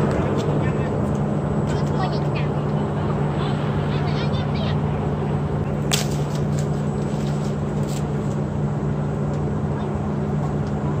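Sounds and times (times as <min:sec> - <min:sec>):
vehicle engine idling: 0:00.0 - 0:11.0.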